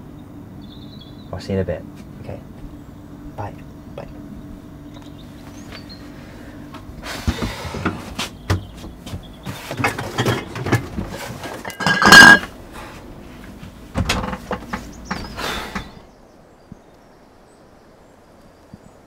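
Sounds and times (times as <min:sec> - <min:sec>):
faint low hum: 0:00.0 - 0:19.0
fridge door and shelves handled: 0:07.1 - 0:12.5, 0:13.9 - 0:16.0
glass bottles clinking: 0:09.7 - 0:12.5.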